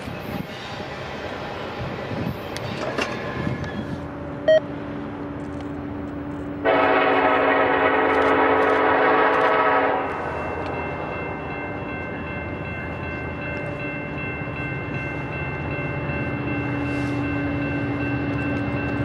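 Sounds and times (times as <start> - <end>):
diesel locomotives rumbling: 0.0 - 19.0
train horn blast: 6.6 - 10.5.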